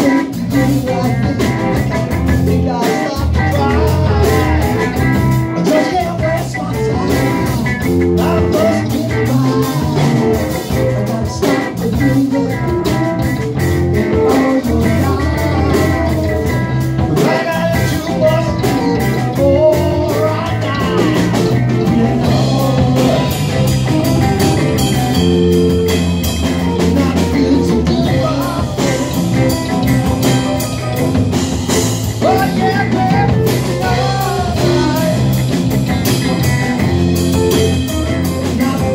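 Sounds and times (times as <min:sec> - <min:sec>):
man singing into a microphone: 0:00.0 - 0:05.0, 0:05.6 - 0:13.2, 0:13.9 - 0:24.2, 0:26.8 - 0:29.3, 0:32.2 - 0:35.6, 0:38.2 - 0:38.9
live rock band playing: 0:00.0 - 0:38.9.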